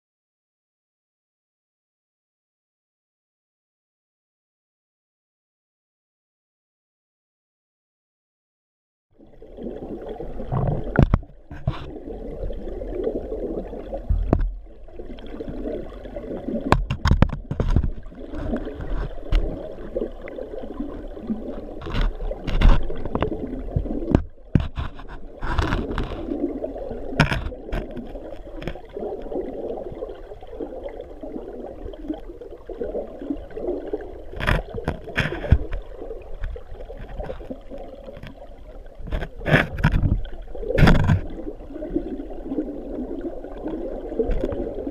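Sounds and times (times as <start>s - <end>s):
muffled underwater water rushing: 9.2s - 44.9s
sharp knocks and clicks: 10.5s - 11.9s, 14.1s - 14.6s, 16.7s - 18.0s, 40.8s - 41.3s.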